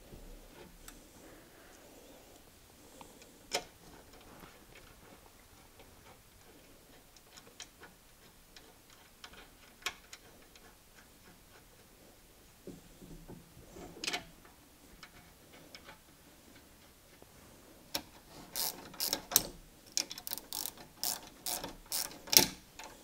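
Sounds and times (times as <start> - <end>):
tool clicks and metal taps: 17.9 - 23.0.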